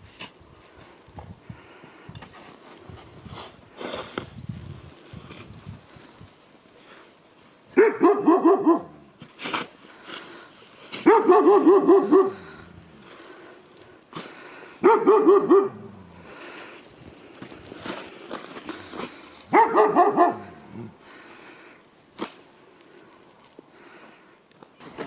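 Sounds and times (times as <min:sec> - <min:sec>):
dog barking in short runs: 0:07.8 - 0:09.0, 0:11.0 - 0:12.5, 0:14.8 - 0:15.9, 0:19.5 - 0:20.6.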